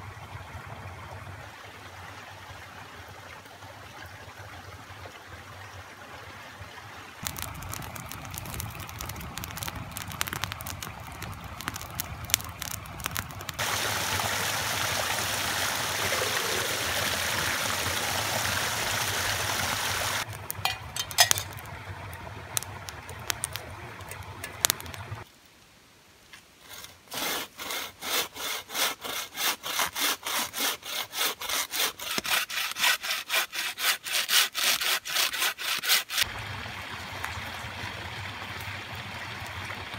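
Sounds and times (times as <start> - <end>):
small waterfall splashing: 0.0 - 25.4, 36.2 - 39.9
hand saw cutting log: 26.7 - 36.3.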